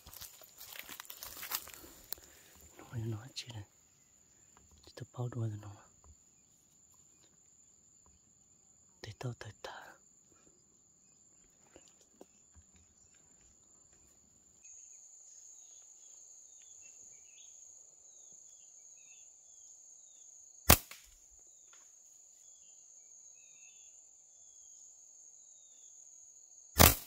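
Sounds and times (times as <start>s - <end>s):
insects buzzing: 0.0s - 27.0s
bird chirping: 11.0s - 20.4s, 22.4s - 24.8s
slingshot crack: 20.7s - 21.2s, 26.8s - 27.0s.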